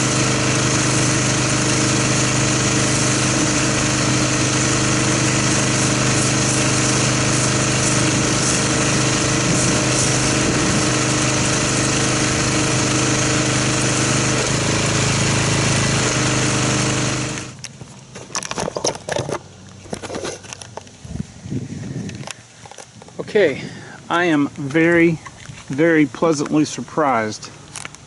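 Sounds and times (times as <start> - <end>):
foam gun spraying hiss: 0.0 - 17.5
pressure washer running: 0.0 - 18.1.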